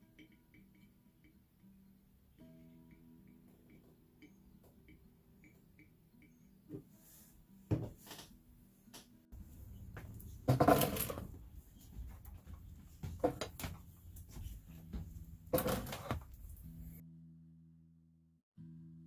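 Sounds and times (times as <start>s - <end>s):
glass jars knocking and clinking: 10.3s - 11.3s.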